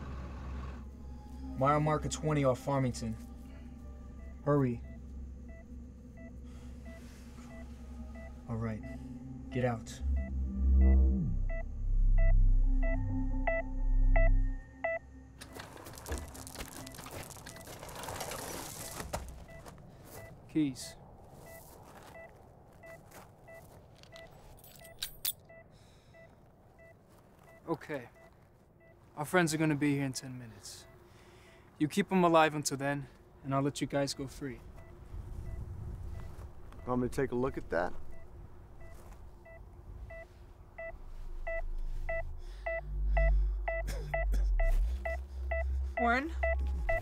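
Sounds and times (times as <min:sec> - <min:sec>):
low rumble: 0:00.0 - 0:19.6, 0:38.0 - 0:47.0
faint electronic beep: 0:04.1 - 0:29.0, 0:34.1 - 0:37.4, 0:38.0 - 0:47.0
keys jangling: 0:24.5 - 0:25.5.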